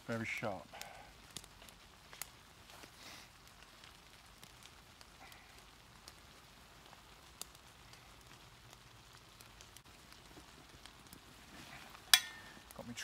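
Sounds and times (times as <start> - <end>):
water drops falling from trees: 0.7 - 13.0.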